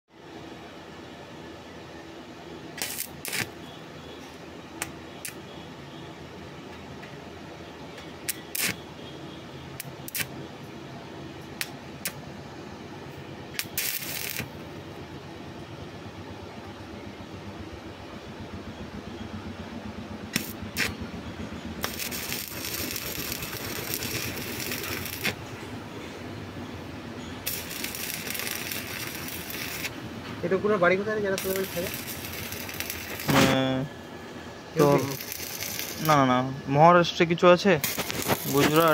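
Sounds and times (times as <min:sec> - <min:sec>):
welding arc crackling: 0:02.8 - 0:03.6, 0:04.8 - 0:05.4, 0:08.2 - 0:08.9, 0:09.7 - 0:10.4, 0:11.6 - 0:12.2, 0:13.5 - 0:14.8, 0:20.2 - 0:33.9, 0:34.7 - 0:36.5, 0:37.8 - 0:38.9
electrode striking clicks: 0:08.2 - 0:08.8, 0:20.3 - 0:21.0, 0:37.8 - 0:38.9
low hum: 0:12.3 - 0:36.8.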